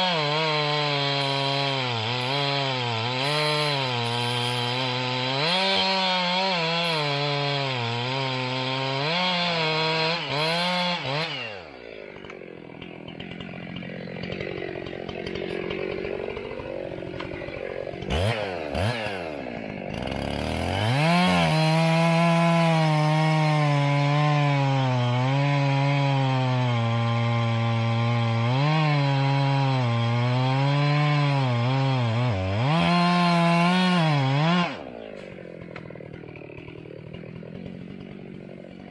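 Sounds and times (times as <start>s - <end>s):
chainsaw cutting wood: 0.0s - 38.9s.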